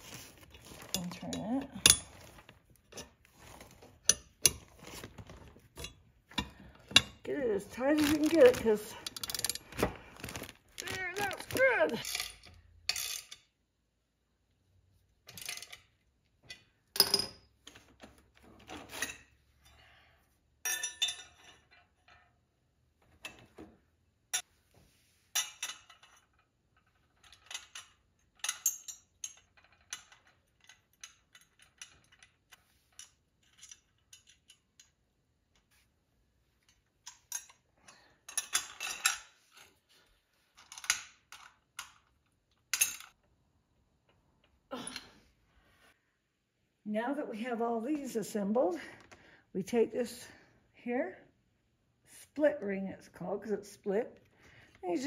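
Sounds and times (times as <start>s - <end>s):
metal parts clanking: 3.9s - 13.4s.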